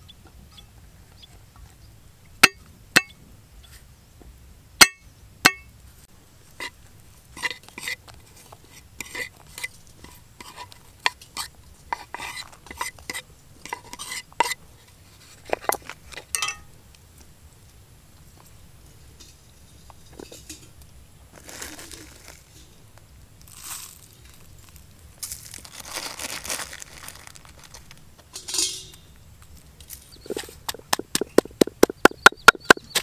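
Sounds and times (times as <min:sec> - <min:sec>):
ingredients clattering into stone mortar: 0:15.7 - 0:16.7, 0:30.3 - 0:33.0
cleaver chopping on wooden block: 0:30.7 - 0:33.0.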